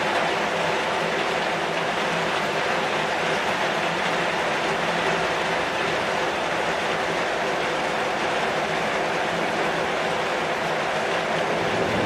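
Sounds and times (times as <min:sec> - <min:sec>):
heavy rain on a metal roof: 0:00.0 - 0:12.0.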